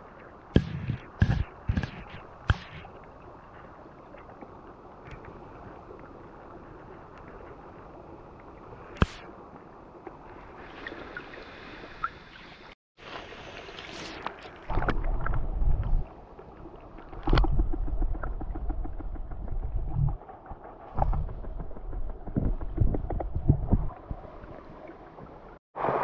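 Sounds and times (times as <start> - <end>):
flowing water underwater: 0.0 - 26.0
grit and pebbles ticking: 17.2 - 24.2.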